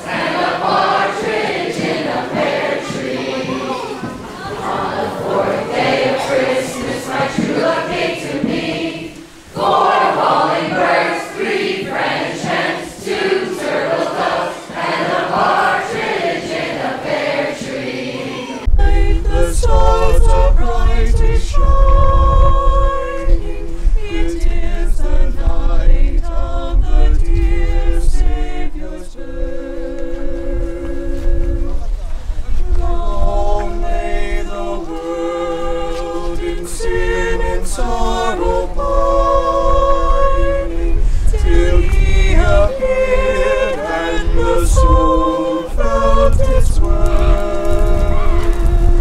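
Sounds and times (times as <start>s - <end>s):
group singing a cappella: 0.0s - 49.0s
voices holding notes: 0.0s - 49.0s
steady low rumble: 18.7s - 29.5s, 30.2s - 49.0s.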